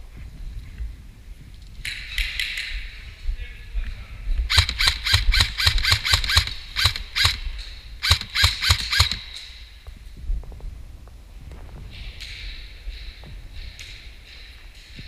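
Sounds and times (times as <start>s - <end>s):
airsoft rifle shots: 4.5s - 9.6s.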